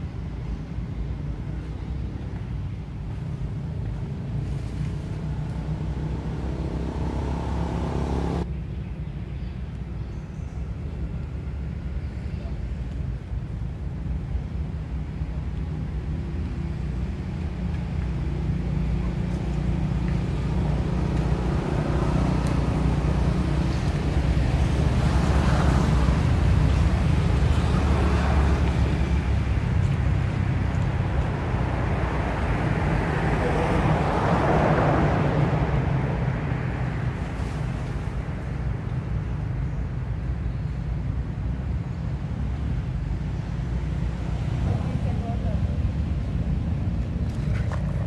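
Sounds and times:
road traffic rumble: 0.0 - 48.0.

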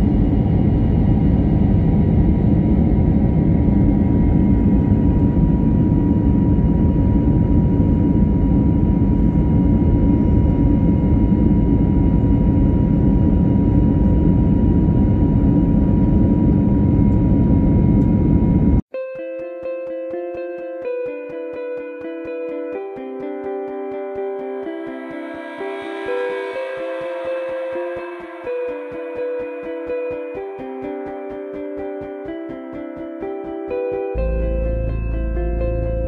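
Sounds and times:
jet engine cabin roar: 0.0 - 18.8
plucked music notes: 19.0 - 36.0.

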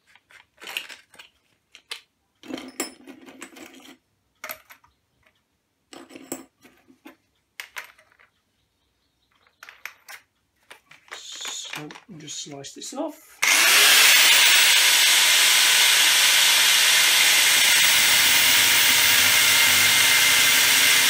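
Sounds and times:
metal disc clinks and rattles: 0.0 - 4.9.

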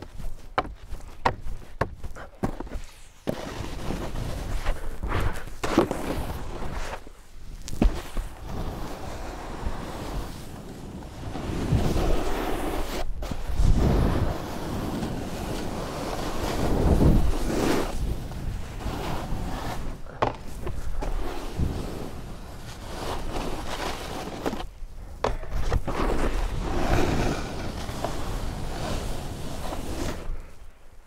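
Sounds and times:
snowboard carving through snow: 0.0 - 31.0
rushing wind: 8.3 - 23.8.

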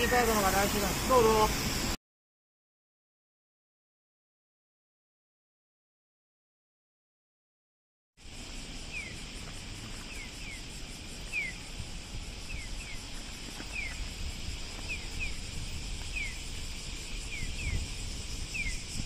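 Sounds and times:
high hiss: 0.0 - 2.0, 8.2 - 19.0
street rumble: 8.2 - 19.0.

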